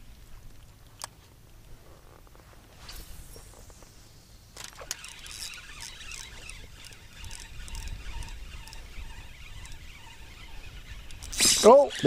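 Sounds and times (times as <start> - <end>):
wind rumbling on microphone: 5.7 - 12.0.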